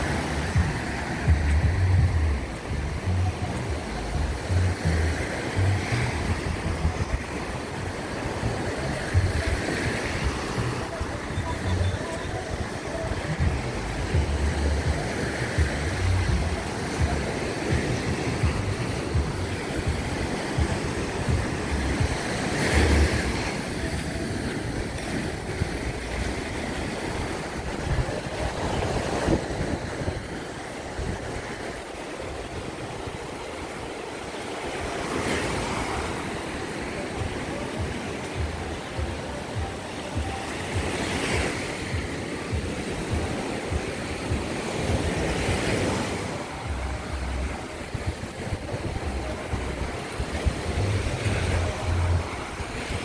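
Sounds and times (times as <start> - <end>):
small waves breaking on beach: 0.0 - 53.0
wind buffeting microphone: 23.2 - 33.6.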